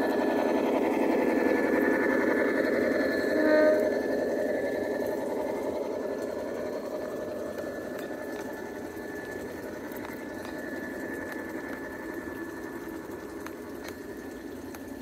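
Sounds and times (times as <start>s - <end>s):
model locomotive diesel engine sound: 0.0s - 15.0s
thin steady whine: 0.0s - 15.0s
wheels clicking over rail joints: 0.0s - 15.0s.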